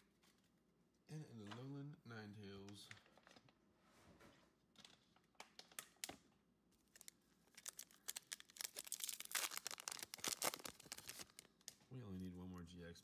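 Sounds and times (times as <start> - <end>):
foil wrapper crinkling and tearing: 6.9 - 11.8.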